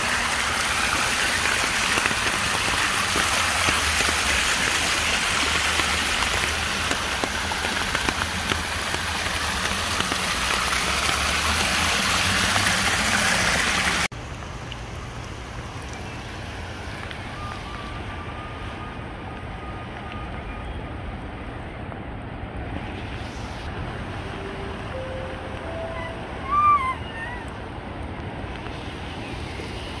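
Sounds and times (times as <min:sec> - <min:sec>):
river in flood rushing: 0:00.0 - 0:14.2
water cascading down stone steps: 0:00.0 - 0:18.1.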